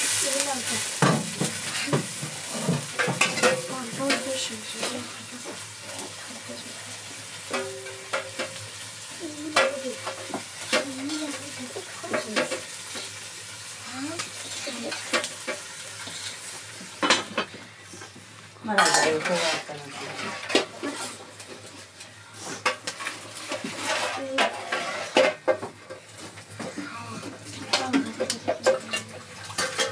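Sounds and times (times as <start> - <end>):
food frying in a pot: 0.0 - 29.9
metal pots clanking and scraping: 0.0 - 29.9.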